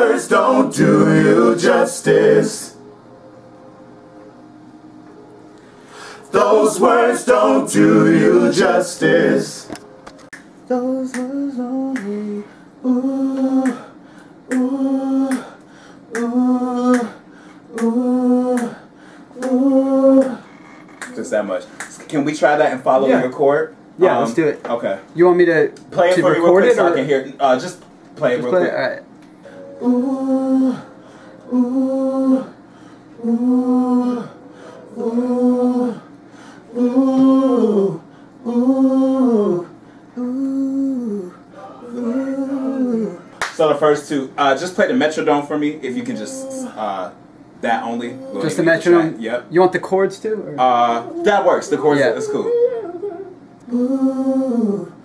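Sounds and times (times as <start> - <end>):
choir singing held note: 0.0 - 4.0, 5.8 - 9.7.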